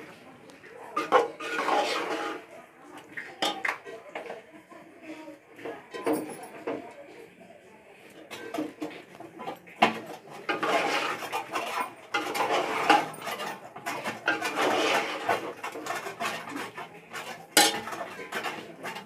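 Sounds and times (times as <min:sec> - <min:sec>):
metal spoon scraping a pot: 0:00.9 - 0:04.4, 0:08.3 - 0:19.0.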